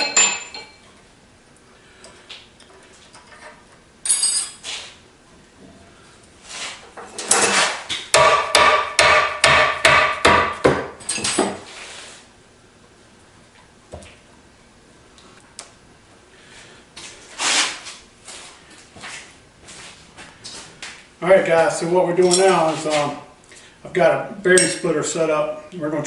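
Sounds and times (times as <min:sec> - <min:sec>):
brief metal scrape: 0:06.4 - 0:07.9, 0:17.4 - 0:18.0
hammer striking metal punch: 0:08.1 - 0:10.9.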